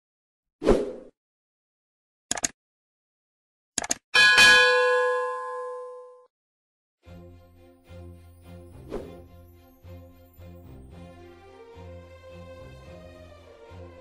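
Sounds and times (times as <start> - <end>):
notification bell ding: 4.2 - 6.3.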